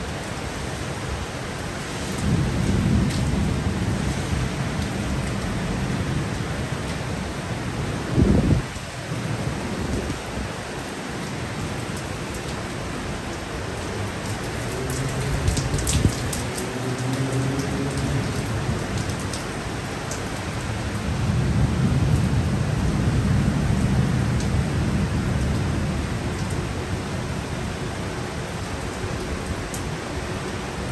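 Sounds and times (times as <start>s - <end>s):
heavy rain pouring: 0.0s - 30.9s
thunder rumbling: 2.2s - 6.6s.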